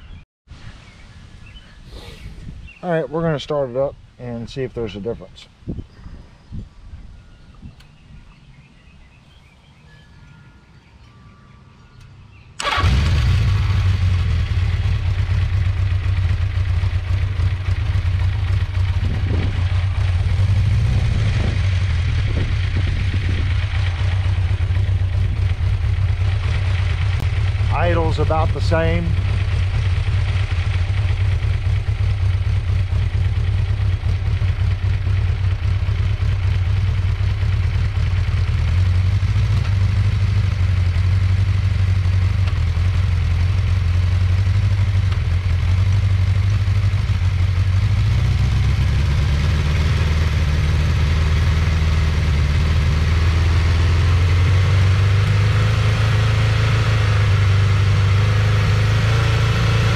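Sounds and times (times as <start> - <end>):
motorcycle engine idling: 12.3 - 56.0.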